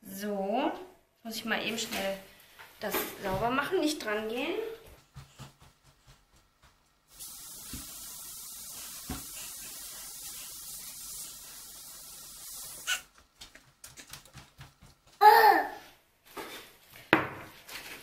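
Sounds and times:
steady hiss: 0:07.1 - 0:13.1.

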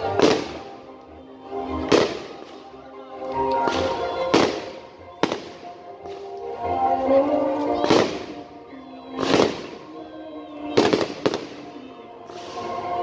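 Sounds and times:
fireworks bursting: 0:00.0 - 0:00.8, 0:01.8 - 0:02.7, 0:03.4 - 0:06.4, 0:07.8 - 0:08.4, 0:09.1 - 0:13.0.

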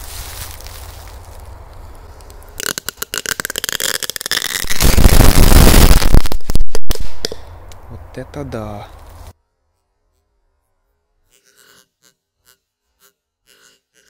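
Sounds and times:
firecracker bangs crackling: 0:02.6 - 0:07.5.

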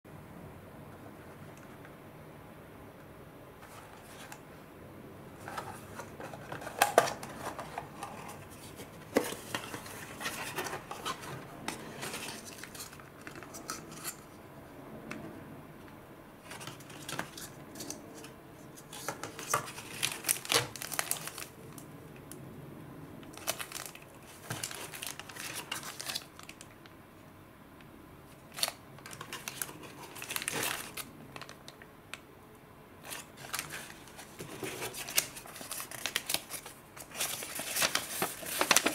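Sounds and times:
plastic and foil packets crinkling: 0:18.9 - 0:21.8, 0:23.3 - 0:26.8, 0:28.4 - 0:31.8, 0:33.0 - 0:38.9.

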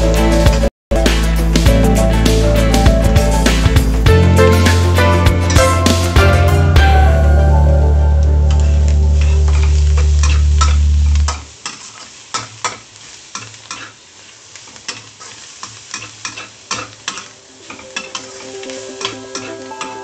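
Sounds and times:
vegetables sizzling: 0:00.0 - 0:20.0
loud low hum: 0:01.4 - 0:11.3
metal spatula scraping a wok: 0:09.2 - 0:14.0, 0:14.6 - 0:20.0.

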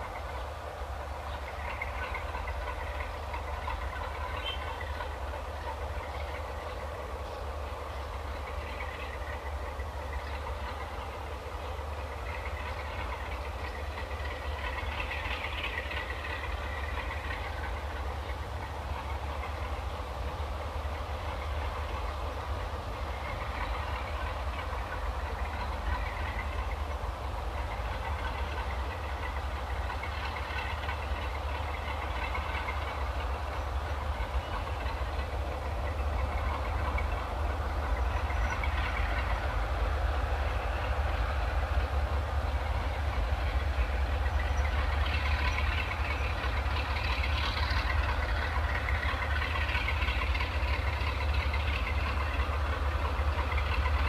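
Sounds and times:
diesel locomotive engine rumble: 0:00.0 - 0:54.0
freight wagons clattering: 0:42.8 - 0:54.0.

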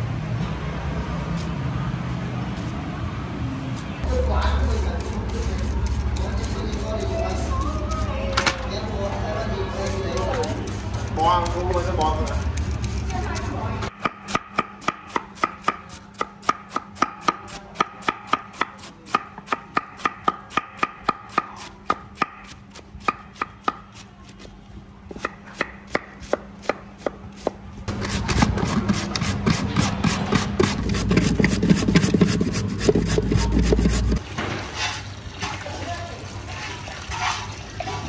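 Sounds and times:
knife chopping on cutting board: 0:11.4 - 0:24.4, 0:25.1 - 0:34.2
scraping and rubbing noise: 0:28.6 - 0:35.0.

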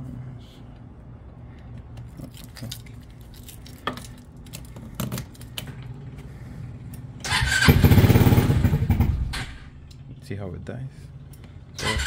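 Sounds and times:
go-kart engine starting and running: 0:07.2 - 0:09.8, 0:11.8 - 0:12.0.

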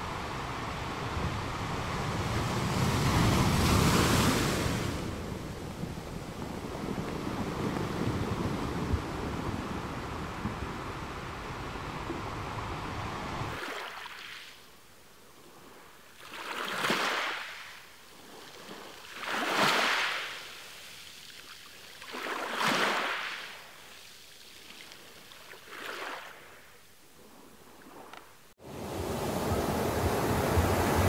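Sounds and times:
surf rushing: 0:00.0 - 0:14.4, 0:28.6 - 0:31.0
small waves washing in: 0:00.0 - 0:31.0
wind: 0:00.0 - 0:31.0.

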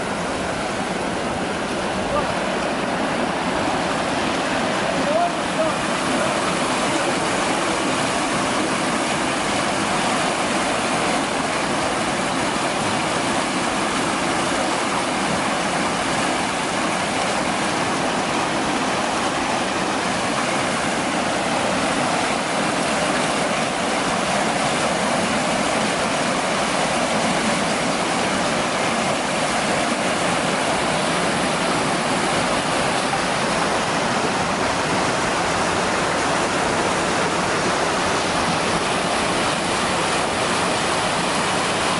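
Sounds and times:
water rushing through channel: 0:00.0 - 0:41.9.

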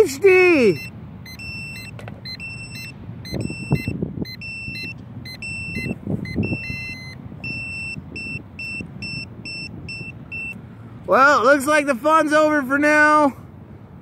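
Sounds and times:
short electronic beeps: 0:00.6 - 0:10.6.

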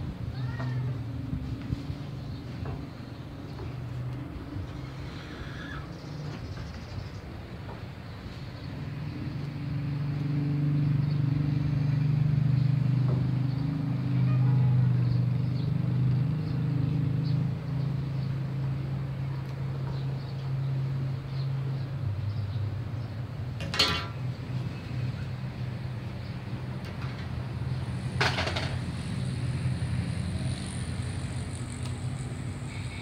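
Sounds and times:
engine humming steadily: 0:00.0 - 0:33.0.

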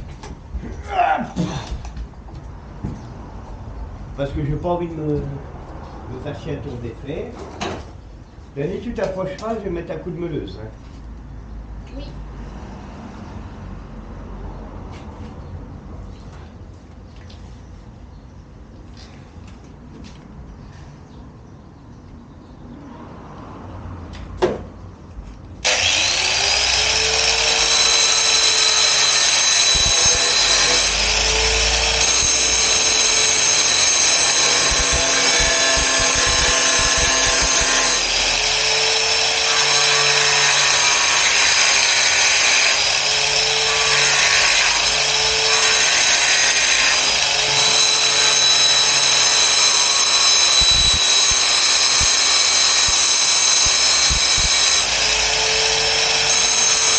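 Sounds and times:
angle grinder whining: 0:25.6 - 0:56.9.

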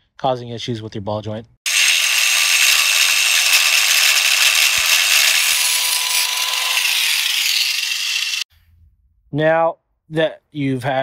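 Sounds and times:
angle grinder cutting steel: 0:01.7 - 0:08.5.

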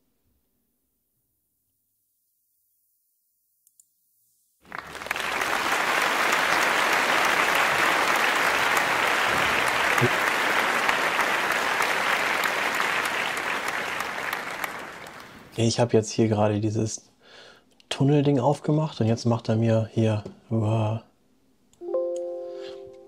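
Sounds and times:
crowd applauding: 0:04.6 - 0:15.5.

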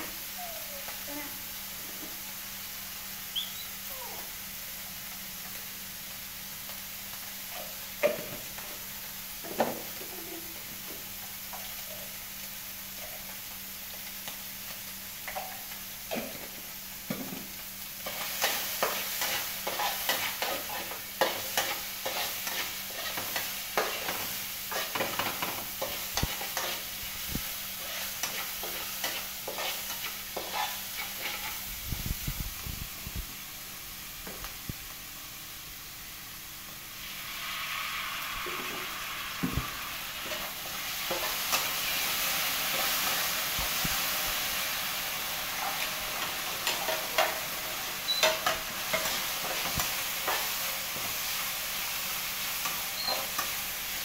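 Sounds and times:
food sizzling in a wok: 0:00.0 - 0:54.0
metal spatula scraping wok: 0:27.8 - 0:31.7.

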